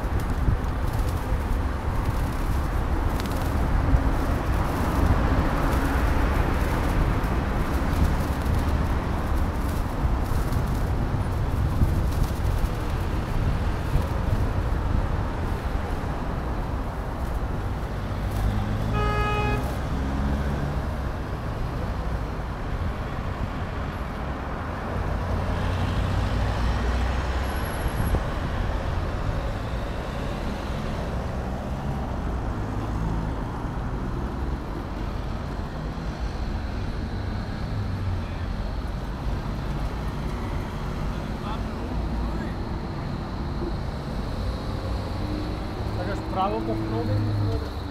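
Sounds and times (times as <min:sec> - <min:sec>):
city traffic rumble: 0:00.0 - 0:47.9
vehicle horn toot: 0:18.9 - 0:19.7.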